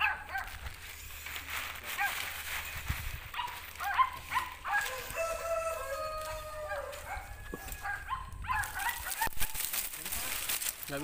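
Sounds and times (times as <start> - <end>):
rooster crowing: 4.7 - 8.1.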